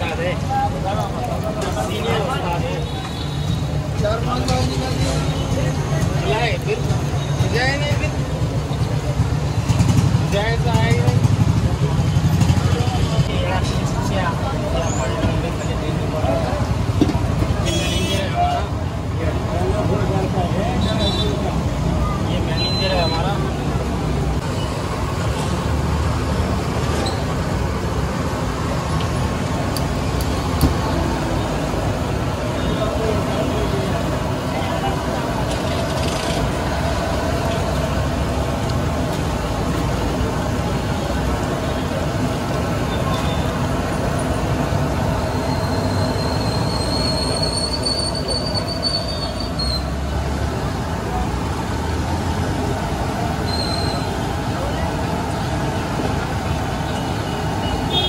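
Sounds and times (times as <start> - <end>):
street traffic rumble: 0.0 - 58.0
high whistling squeal: 45.2 - 50.0, 53.4 - 54.2.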